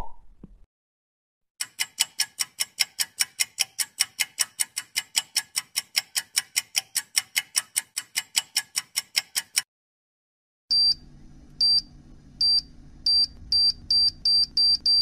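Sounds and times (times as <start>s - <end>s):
clock ticking: 1.6s - 9.7s.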